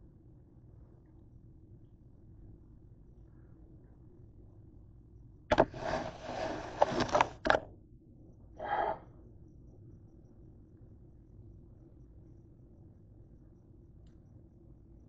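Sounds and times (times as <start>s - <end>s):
short rustle: 5.5s - 7.5s
scraping and rubbing with clicks: 5.5s - 7.7s, 8.6s - 9.0s.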